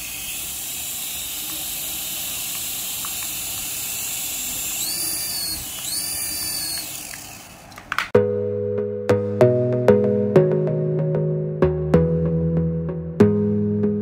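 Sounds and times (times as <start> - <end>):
high motor whine: 0.0 - 7.8
toy helicopter motors whirring: 0.0 - 7.8.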